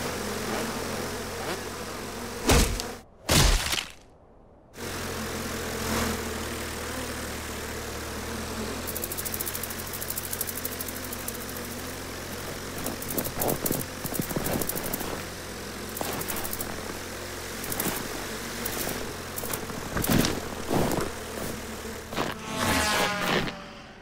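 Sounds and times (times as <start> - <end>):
insect wingbeats droning: 4.8 - 24.0
fast flutter of ticks: 8.8 - 23.6.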